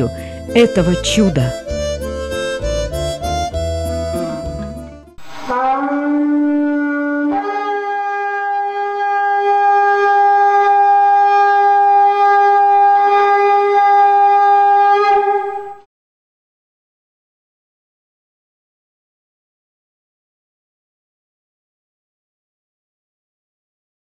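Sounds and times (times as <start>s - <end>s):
background music: 0.0s - 7.7s
shofar blast: 3.9s - 15.8s.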